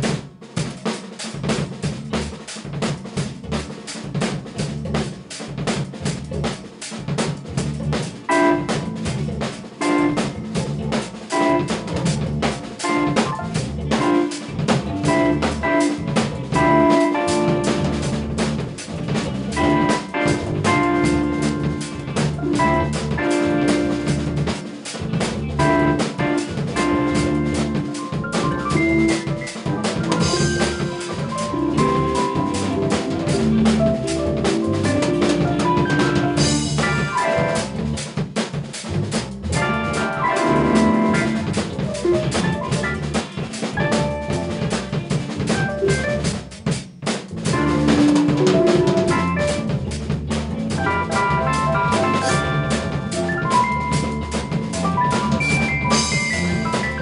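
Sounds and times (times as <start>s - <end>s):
drum kit beat: 0.0s - 57.0s
electric bass: 1.5s - 57.0s
electric organ: 7.5s - 38.1s, 39.6s - 46.5s, 47.4s - 57.0s
electric piano: 8.1s - 38.1s, 39.5s - 46.6s, 47.5s - 57.0s
electric guitar: 8.3s - 38.0s, 39.5s - 46.3s, 47.5s - 49.8s, 50.4s - 57.0s.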